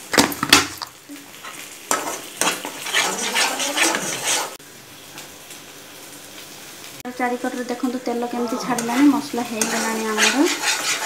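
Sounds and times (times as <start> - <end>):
low sizzle: 0.0 - 11.0
metal spatula scraping a pan: 1.4 - 4.6, 8.4 - 11.0
spatula clacking against pan: 8.7 - 11.0.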